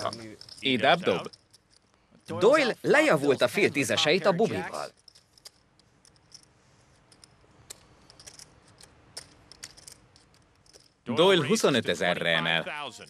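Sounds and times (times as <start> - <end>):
clay poker chips clicking: 0.0 - 2.4, 4.9 - 11.0.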